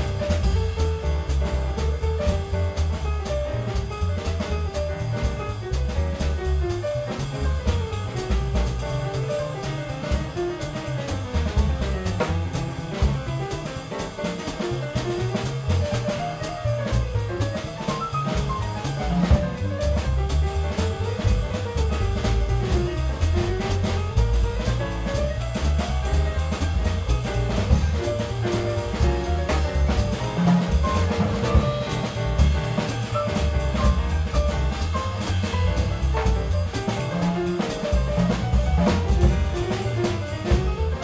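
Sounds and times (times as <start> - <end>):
cymbal-driven drums: 0.0 - 41.0
piano melody: 0.0 - 41.0
upright bass: 0.0 - 41.0.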